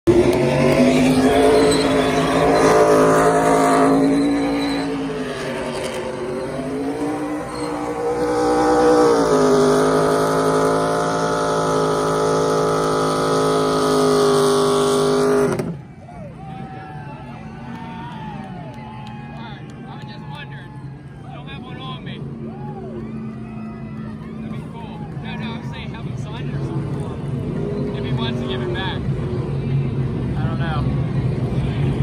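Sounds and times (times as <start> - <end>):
engine revving high: 0.1 - 15.8
tires spinning on pavement: 0.1 - 32.0.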